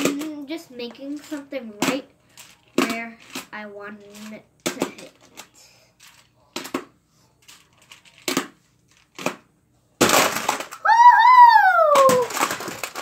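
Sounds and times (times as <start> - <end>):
tiles clattering crash: 10.0 - 10.8, 12.0 - 13.0
boy's drawn-out exclamation: 10.8 - 12.4.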